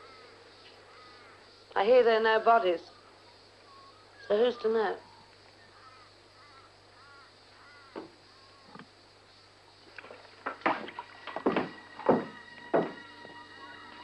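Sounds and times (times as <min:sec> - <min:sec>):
crows cawing: 0:00.0 - 0:01.5, 0:02.9 - 0:08.8
boot steps on wooden floorboards: 0:10.4 - 0:13.4.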